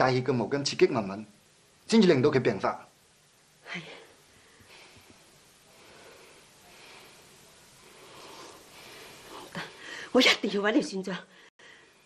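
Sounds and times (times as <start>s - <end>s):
woman breathing heavily: 3.9s - 10.2s, 11.3s - 12.0s.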